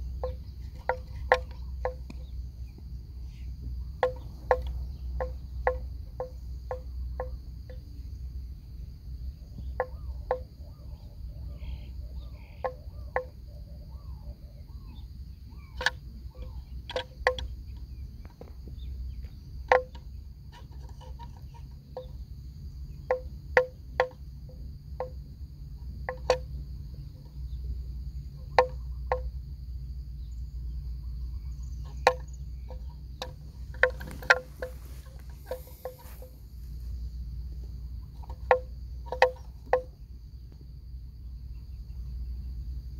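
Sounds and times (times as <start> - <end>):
wooden bells clonking: 0.0 - 2.2, 4.0 - 7.8, 23.1 - 24.2, 31.8 - 36.5, 38.0 - 40.0
insects droning: 0.0 - 42.9.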